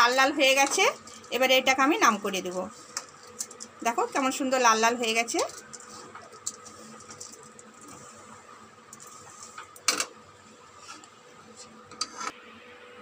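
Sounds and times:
spatula scraping sugar in pan: 10.7s - 12.4s.

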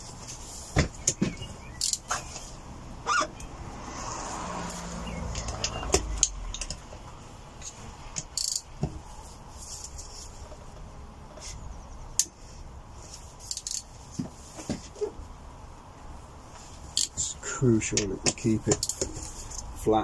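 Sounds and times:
socket wrench clicking: 8.2s - 8.7s, 13.5s - 13.9s.

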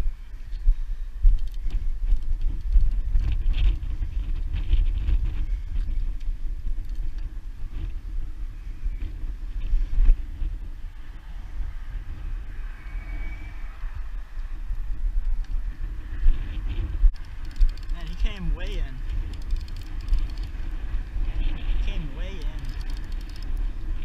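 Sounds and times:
wind buffeting microphone: 0.0s - 24.0s
faint ticks: 17.1s - 18.1s, 22.4s - 23.6s.

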